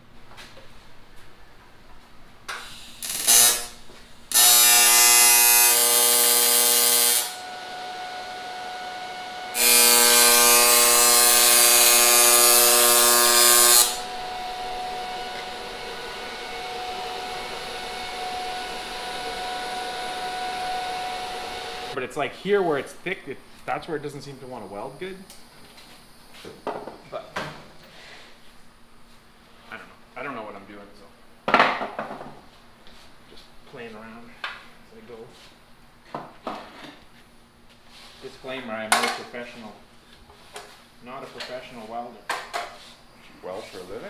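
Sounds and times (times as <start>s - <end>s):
electric welder buzzing: 2.5s - 22.0s
faint steady hum: 7.2s - 31.5s.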